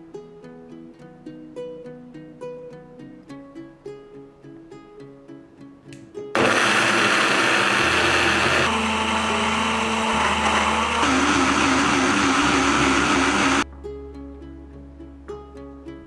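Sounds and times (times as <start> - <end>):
blender whirring: 6.4 - 13.6.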